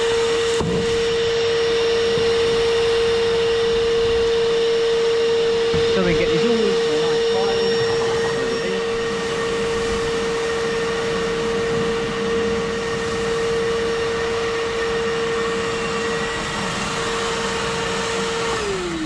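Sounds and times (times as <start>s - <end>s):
vacuum blower motor whine: 0.0s - 19.0s.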